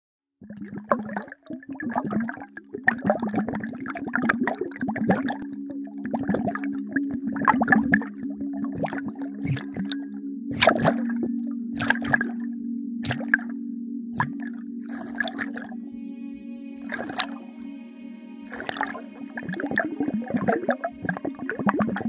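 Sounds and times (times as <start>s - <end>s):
underwater bubbling and gurgles: 0.4s - 15.9s, 16.8s - 17.4s, 18.5s - 22.0s
steady low hum: 10.2s - 21.2s.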